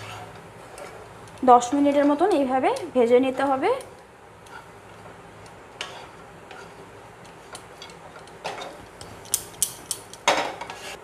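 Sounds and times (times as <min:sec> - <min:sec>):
spatula scraping frying pan: 0:00.0 - 0:02.4, 0:04.4 - 0:05.1, 0:05.8 - 0:09.2, 0:10.4 - 0:11.0.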